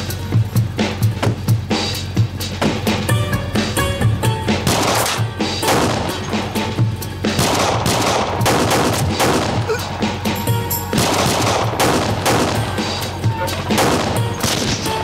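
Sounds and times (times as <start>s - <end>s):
dramatic background music: 2.6s - 15.0s
pistol and rifle gunfire: 4.6s - 6.3s, 7.3s - 9.7s, 10.9s - 13.0s, 13.6s - 14.9s.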